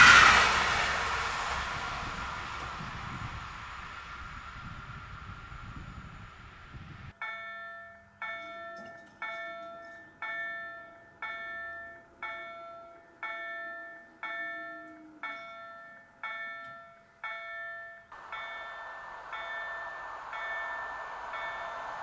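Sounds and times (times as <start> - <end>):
level crossing bell ringing: 15.4 - 22.0.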